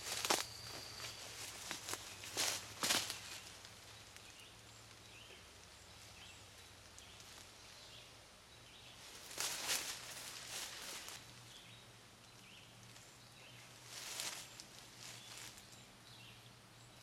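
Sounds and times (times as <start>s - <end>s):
faint bird chirps: 0.0s - 17.0s
rustle of nylon gear: 9.1s - 11.3s.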